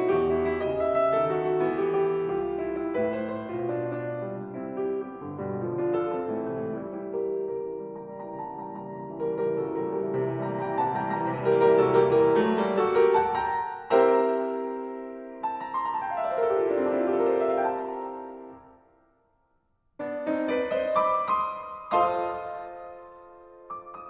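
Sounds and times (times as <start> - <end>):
piano music: 0.0 - 19.0, 20.0 - 24.0.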